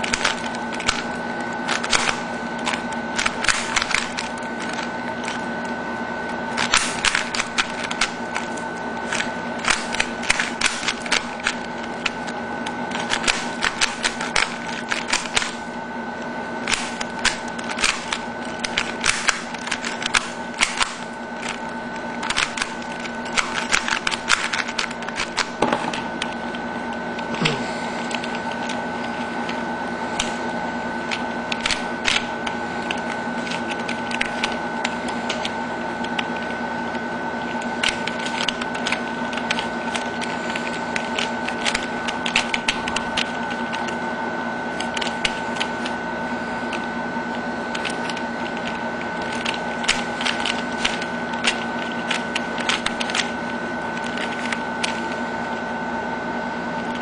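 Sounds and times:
electrical hum: 0:00.0 - 0:57.0
puzzle cube clicking: 0:22.2 - 0:26.0, 0:47.7 - 0:53.3.

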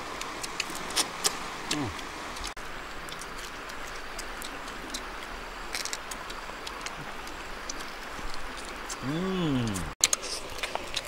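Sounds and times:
outdoor background hiss: 0:00.0 - 0:11.0.

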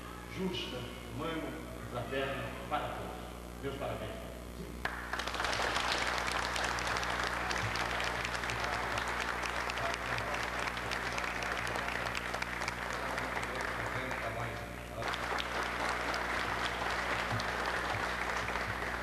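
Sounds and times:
audience applauding: 0:04.8 - 0:19.0.

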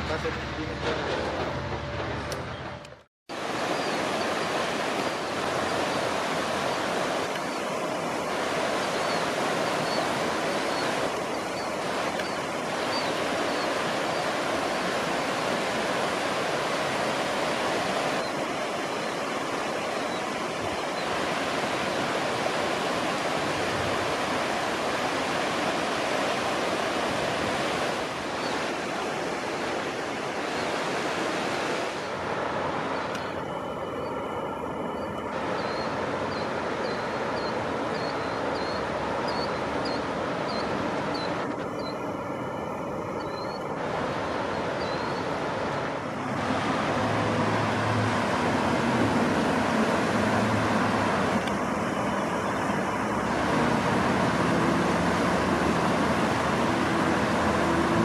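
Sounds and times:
train passing: 0:00.0 - 0:03.0
water rushing past bridge piers: 0:00.0 - 0:58.0.

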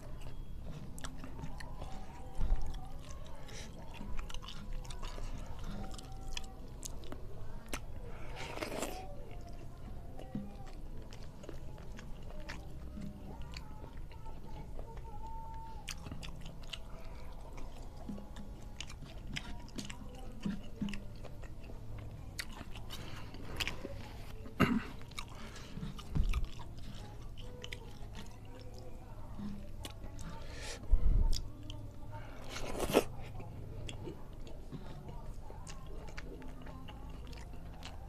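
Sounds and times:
low steady hum: 0:00.0 - 0:38.0
person chewing rice: 0:00.0 - 0:38.0.

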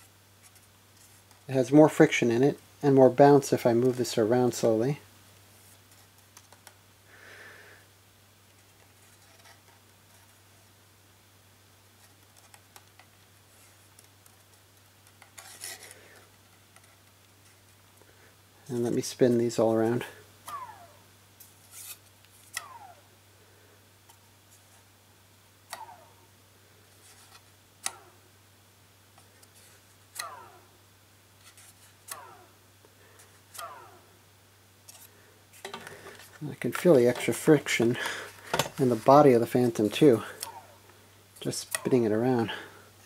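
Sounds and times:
faint handling sounds: 0:00.0 - 0:06.8, 0:08.4 - 0:10.8, 0:11.9 - 0:20.7, 0:21.4 - 0:22.7, 0:26.7 - 0:28.1, 0:29.1 - 0:30.4, 0:31.3 - 0:33.7, 0:34.8 - 0:43.0.

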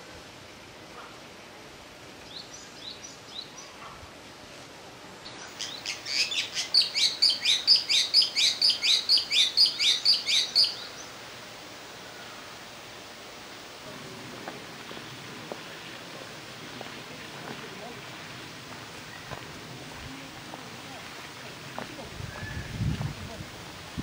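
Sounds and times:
bird calling: 0:05.2 - 0:11.2, 0:19.0 - 0:19.5.

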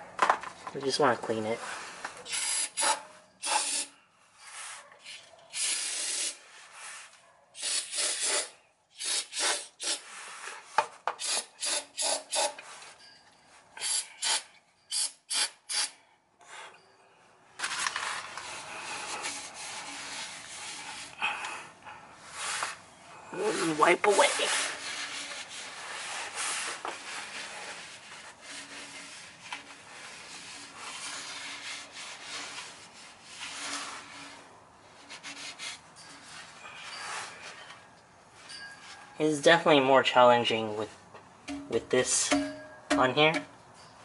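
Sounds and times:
aerosol spray bursts: 0:02.3 - 0:03.9, 0:05.5 - 0:06.4, 0:07.6 - 0:10.0
rubbing while wiping: 0:18.4 - 0:21.2, 0:23.4 - 0:37.5.

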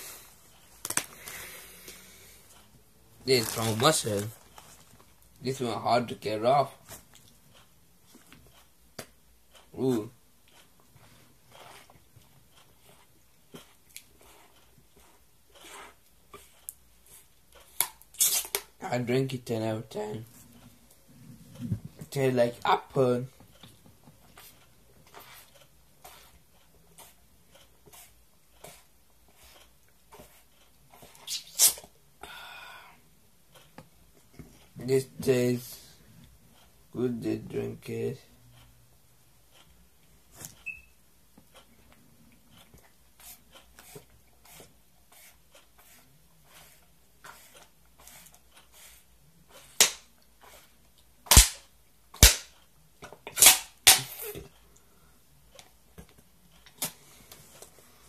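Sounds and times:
plastic bottle crackling and popping: 0:00.8 - 0:01.3, 0:03.3 - 0:04.3.

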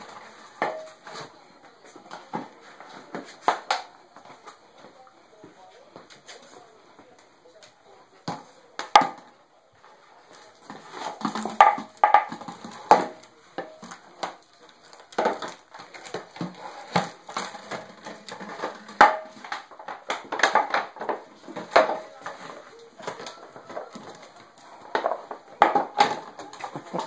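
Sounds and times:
dog chewing plastic bottle: 0:10.3 - 0:27.0
plastic knocking on wooden floor: 0:10.7 - 0:14.4, 0:15.1 - 0:27.0.

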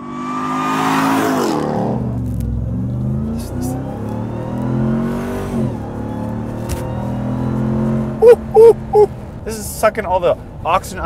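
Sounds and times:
truck engine accelerating hard: 0:00.0 - 0:11.0.

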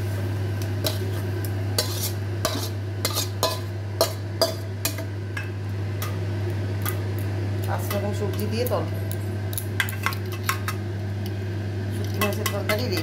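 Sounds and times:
metal spatula scraping a pan: 0:01.8 - 0:04.6.

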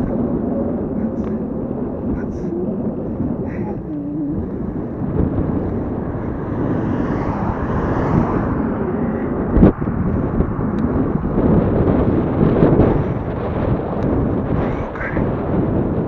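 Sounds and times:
car passing: 0:00.0 - 0:15.3
tyre and road noise: 0:00.0 - 0:16.0
wind over microphone: 0:00.0 - 0:16.0.

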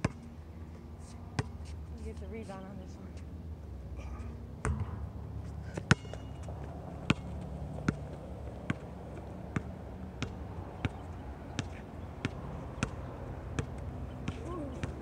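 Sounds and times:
basketball bouncing on hard court: 0:04.6 - 0:05.0, 0:05.8 - 0:15.0.

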